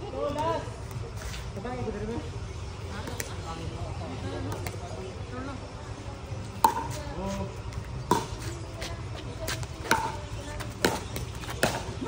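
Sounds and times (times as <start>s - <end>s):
plastic ball struck by paddles: 6.6s - 6.9s, 8.1s - 8.3s, 10.8s - 11.9s.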